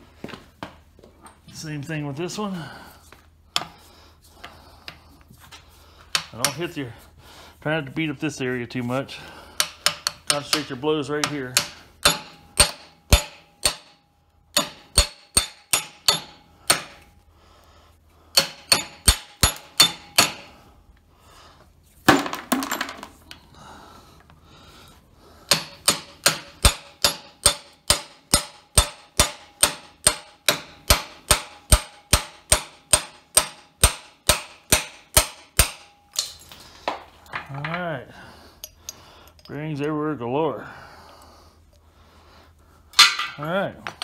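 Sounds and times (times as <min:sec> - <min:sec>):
hammer striking steel: 0:09.6 - 0:17.1, 0:18.3 - 0:20.6, 0:25.5 - 0:36.4, 0:43.0 - 0:43.5.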